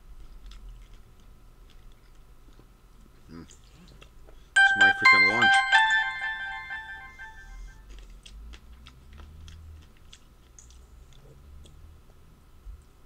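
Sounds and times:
person chewing berries: 0.0s - 4.4s, 7.9s - 11.8s
chime ringing: 4.6s - 7.6s.

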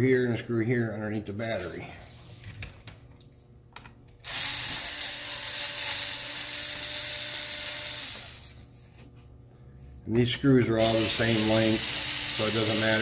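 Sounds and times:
electric screwdriver whirring: 4.2s - 8.7s, 10.8s - 13.0s.

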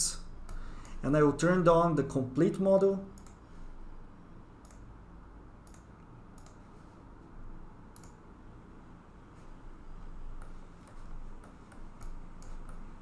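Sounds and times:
low room hum: 0.0s - 13.0s
computer mouse clicks: 3.2s - 3.4s, 4.6s - 4.9s, 5.6s - 6.6s, 7.9s - 8.2s, 10.3s - 12.9s.

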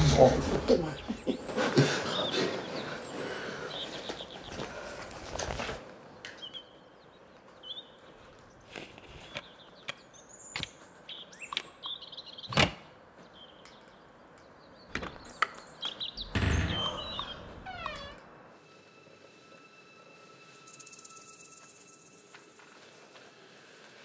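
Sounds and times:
birds chirping faintly: 0.0s - 18.2s.

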